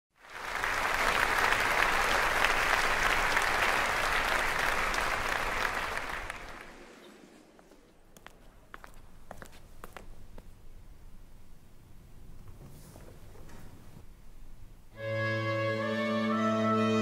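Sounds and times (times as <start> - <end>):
audience applauding: 0.1 - 7.3.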